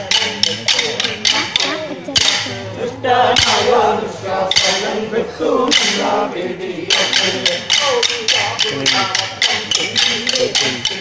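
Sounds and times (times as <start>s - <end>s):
sharp percussive strikes: 0.0s - 2.7s, 3.3s - 3.8s, 4.4s - 5.0s, 5.6s - 6.2s, 6.8s - 11.0s
men singing folk song: 0.0s - 11.0s.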